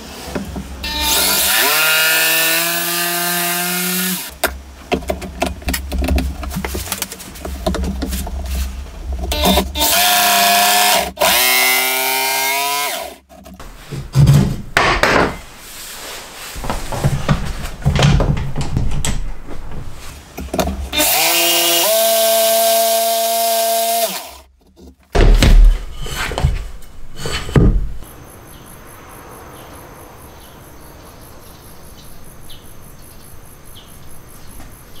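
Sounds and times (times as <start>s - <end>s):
jigsaw cutting wood: 0.9s - 4.3s, 9.3s - 13.2s, 21.0s - 24.5s
wooden knocks and clunks: 4.4s - 9.8s, 13.3s - 15.5s, 16.6s - 21.0s, 24.5s - 28.1s
faint steady background noise: 24.4s - 35.0s.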